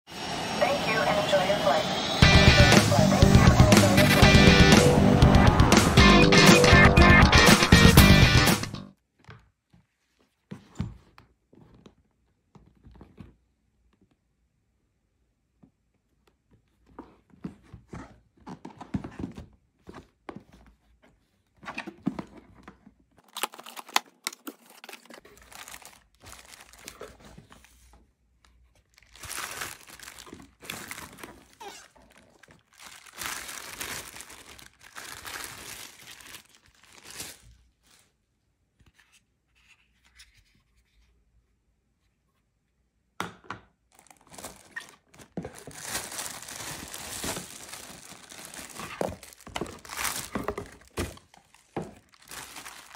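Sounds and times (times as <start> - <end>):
plastic wrap crinkling: 23.2 - 27.4, 28.7 - 38.2, 43.9 - 52.9.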